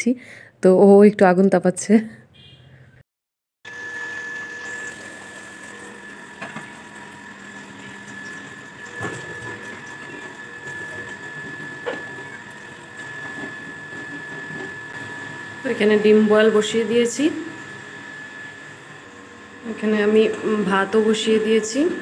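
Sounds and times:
machine hum: 3.7s - 22.0s
tap water running into bowl: 4.2s - 14.8s.

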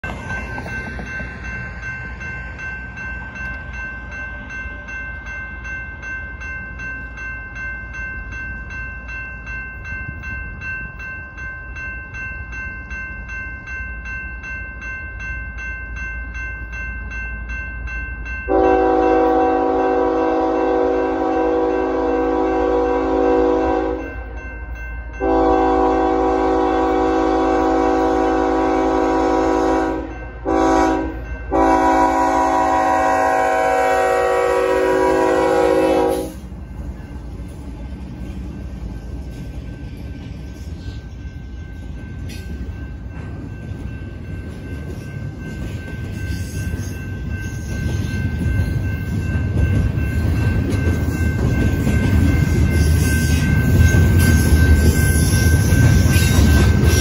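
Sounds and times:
electronic crossing bell ringing: 0.0s - 37.2s, 38.9s - 57.0s
locomotive air horn blasts: 18.5s - 24.1s, 25.2s - 36.4s.

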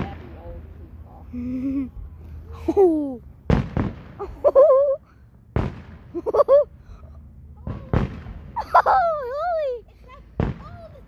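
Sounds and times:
firework shells booming: 3.4s - 4.4s, 5.5s - 6.2s, 7.6s - 8.6s, 10.4s - 10.9s.

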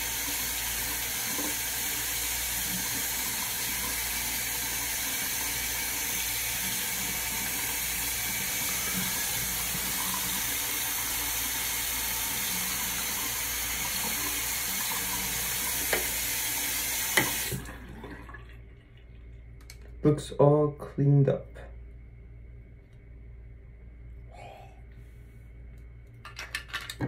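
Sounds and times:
tap water running into sink: 0.0s - 19.1s.

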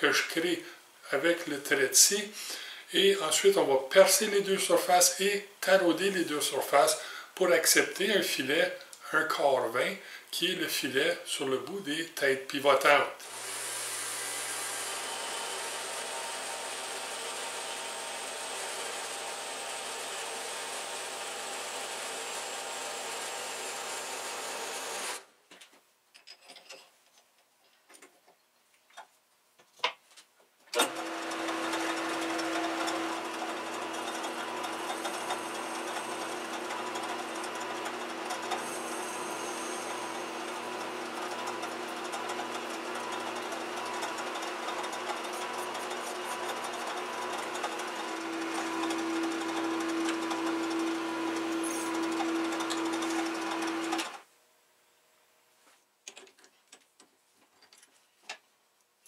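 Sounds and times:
metal lathe running: 13.2s - 25.2s, 30.8s - 54.2s
bandsaw cutting metal tube: 13.2s - 25.3s, 30.8s - 54.2s
faint clicks and knocks: 56.0s - 58.9s.

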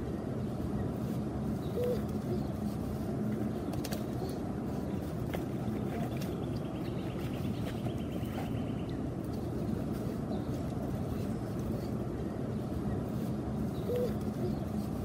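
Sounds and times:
low outdoor rumble: 0.0s - 15.0s
faint chirp: 6.0s - 15.0s.

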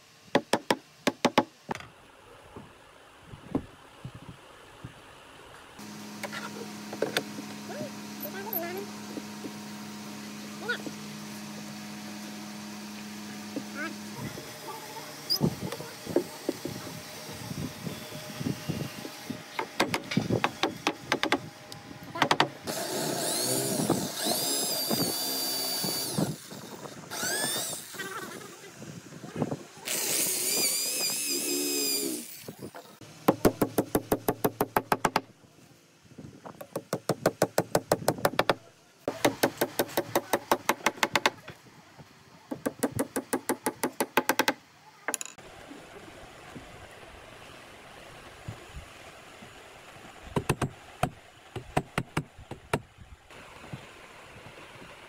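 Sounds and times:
cordless drill boring into wood: 22.6s - 28.1s, 29.8s - 32.6s.

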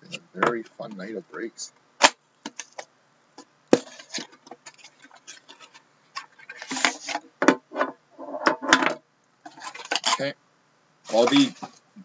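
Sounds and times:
tin scraping: 3.8s - 10.3s.

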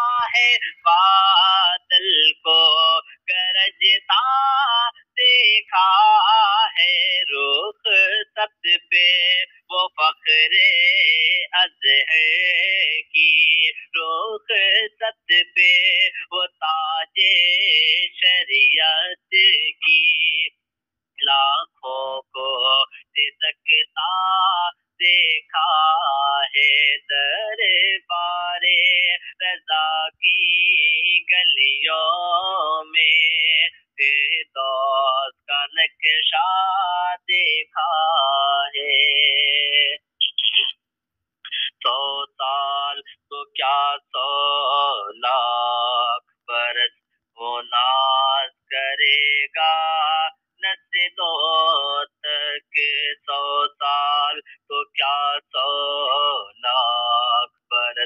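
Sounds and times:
man singing unaccompanied: 0.0s - 20.6s, 21.2s - 40.7s, 41.5s - 58.0s.

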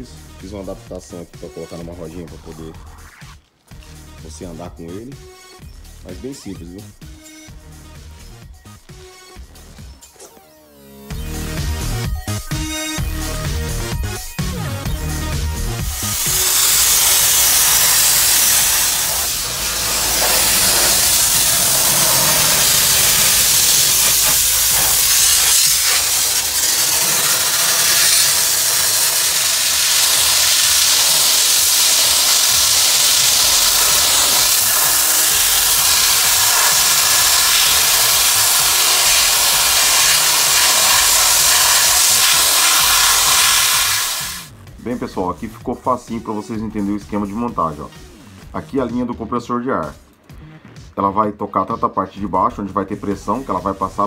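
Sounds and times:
sandblaster hissing: 15.0s - 44.5s.

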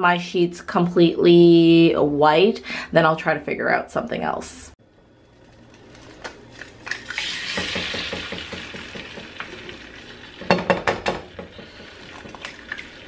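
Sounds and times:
egg sizzling in a pan: 4.9s - 13.0s.

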